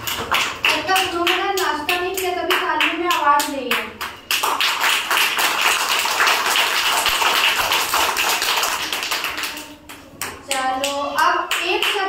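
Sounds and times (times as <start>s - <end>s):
children applauding: 4.3s - 9.8s.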